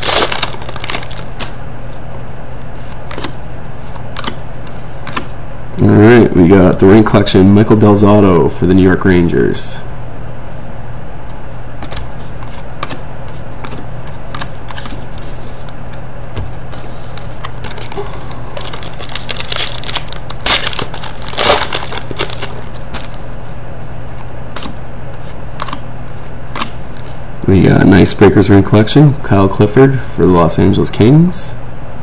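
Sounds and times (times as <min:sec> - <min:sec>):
foil wrapper crinkling: 0:00.0 - 0:01.6, 0:16.8 - 0:23.2.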